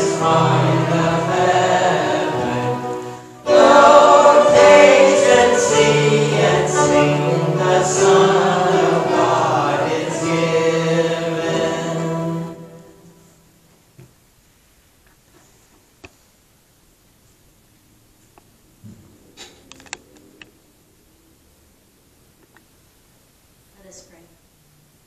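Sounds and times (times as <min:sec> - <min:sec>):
group singing a hymn: 0:00.0 - 0:13.4
instrumental accompaniment: 0:00.0 - 0:13.4.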